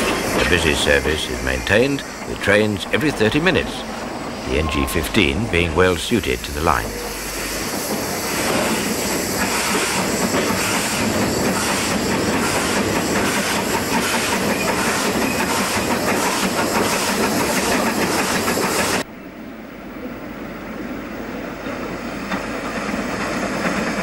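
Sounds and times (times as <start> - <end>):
steam locomotive exhaust: 0.0 - 19.0
train wheels clattering: 7.4 - 19.0.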